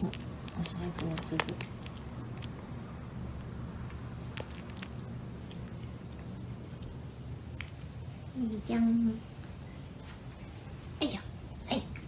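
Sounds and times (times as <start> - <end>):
small bell jingling: 0.0 - 1.9, 4.2 - 5.1, 7.5 - 7.9.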